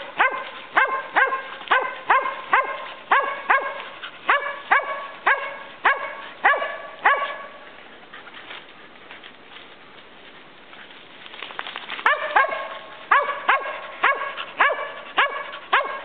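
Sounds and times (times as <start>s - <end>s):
dog barking: 0.0s - 7.6s, 12.0s - 16.0s.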